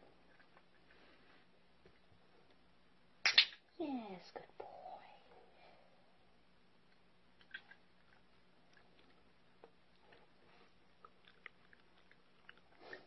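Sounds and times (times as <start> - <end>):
puppy chewing a treat: 7.4 - 13.0.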